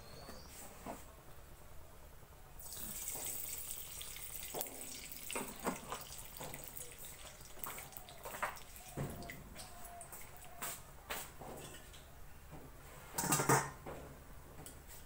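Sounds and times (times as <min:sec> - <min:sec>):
oil pouring into wok: 0:02.6 - 0:09.3.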